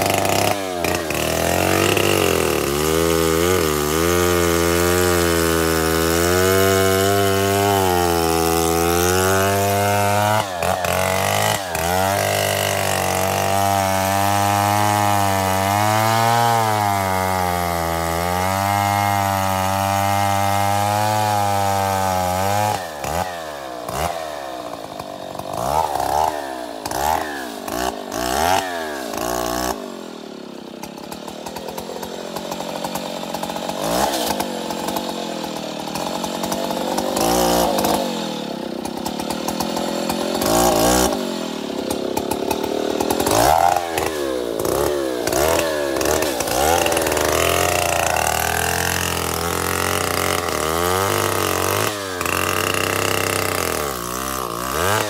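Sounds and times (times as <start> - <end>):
chainsaw cutting wood: 0.0 - 55.0
chainsaw revving and idling: 0.0 - 55.0.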